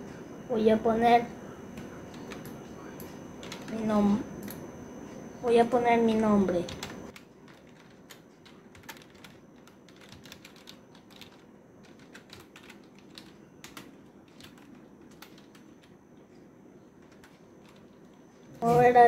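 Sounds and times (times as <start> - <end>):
keyboard typing: 3.4 - 4.6, 6.2 - 16.0, 17.0 - 18.2.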